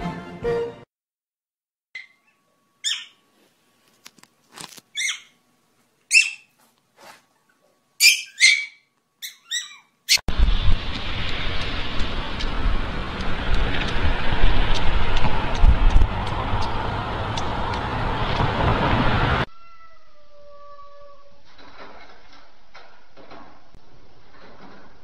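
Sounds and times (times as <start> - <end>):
puppy yipping: 2.0 - 3.2, 4.9 - 5.4, 6.1 - 6.6, 8.0 - 10.3
steady rushing noise: 10.3 - 19.4.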